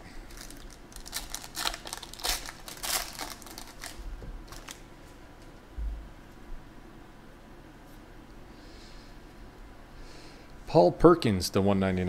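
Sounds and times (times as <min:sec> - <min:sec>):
foil wrapper crinkling: 0:00.3 - 0:04.8.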